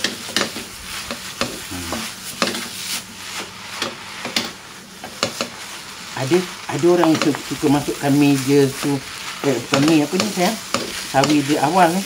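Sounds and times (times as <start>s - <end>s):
spatulas scraping a wok: 0.0s - 12.0s
steady sizzle: 0.0s - 12.0s.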